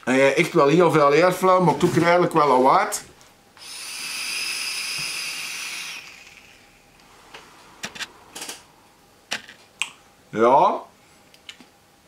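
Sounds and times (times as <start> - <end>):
air hissing with high whistle: 3.6 - 6.6.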